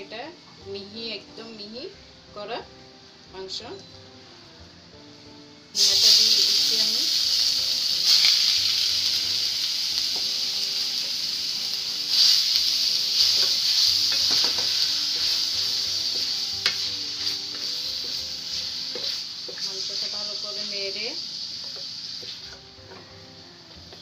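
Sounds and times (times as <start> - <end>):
meat sizzling in hot oil: 5.7 - 24.0
spatula scraping a pan: 12.1 - 20.1.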